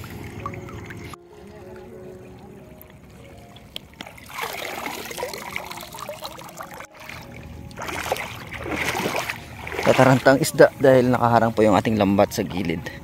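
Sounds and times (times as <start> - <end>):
seawater trickling and splashing: 0.0 - 13.0.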